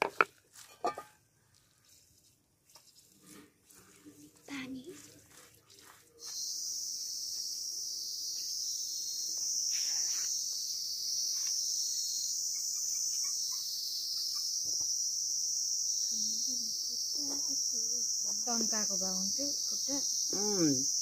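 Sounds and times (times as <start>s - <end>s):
high-pitched insect chorus: 6.2s - 21.0s.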